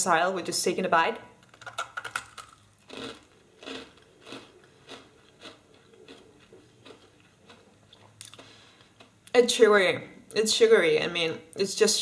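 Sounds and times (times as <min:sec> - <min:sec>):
crunchy chewing of candy: 0:01.5 - 0:09.2.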